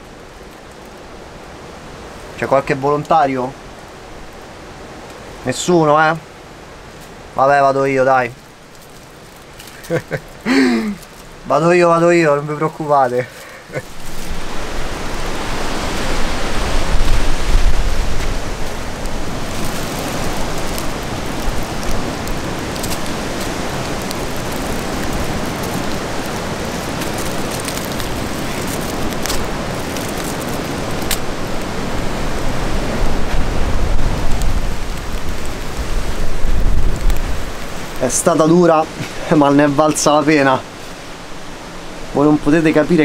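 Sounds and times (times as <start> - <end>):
wind blowing over microphone: 9.8 - 43.0.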